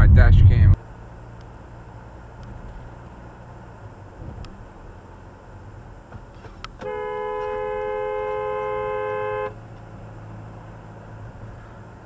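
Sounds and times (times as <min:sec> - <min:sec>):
car driving rumble: 0:00.0 - 0:12.0
car horn blast: 0:06.8 - 0:09.6.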